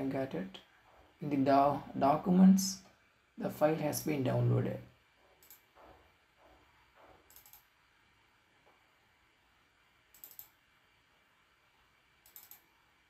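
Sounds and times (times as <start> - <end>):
computer mouse clicks: 5.4 - 5.9, 7.0 - 7.8, 10.1 - 10.6, 12.2 - 12.7.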